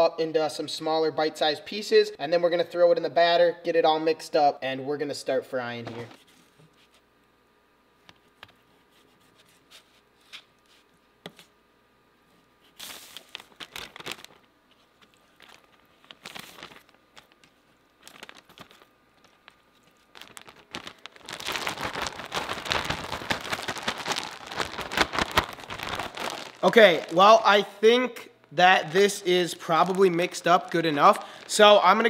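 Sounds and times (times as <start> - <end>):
plastic bag crinkling: 12.7 - 27.8, 28.4 - 32.0.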